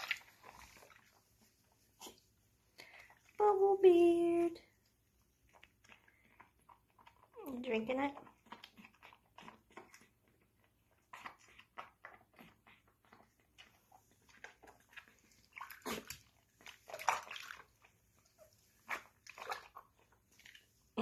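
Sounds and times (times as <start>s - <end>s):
water splashing in a sink: 0.0s - 1.5s, 13.6s - 21.0s.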